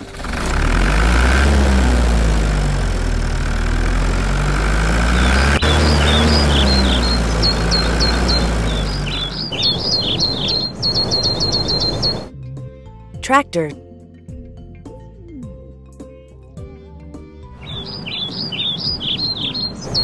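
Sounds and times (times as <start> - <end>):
tractor engine rumbling: 0.0 - 12.3, 17.6 - 20.0
birds chirping: 4.1 - 12.3, 17.6 - 20.0.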